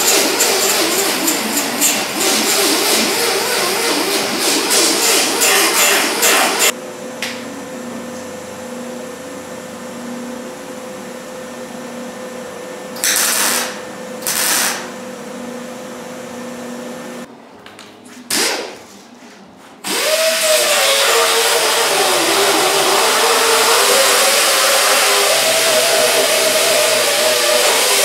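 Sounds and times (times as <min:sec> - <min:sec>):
grinder on sheet steel: 0:00.0 - 0:06.8, 0:19.9 - 0:28.0
welding crackle: 0:13.0 - 0:14.9.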